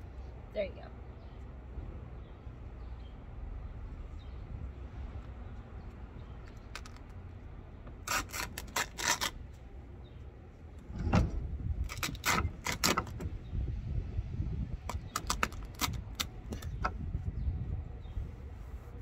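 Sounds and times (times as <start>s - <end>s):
low steady rumble: 0.0s - 19.0s
fabric tearing and crackling: 8.0s - 9.6s, 11.8s - 13.2s, 14.9s - 16.6s.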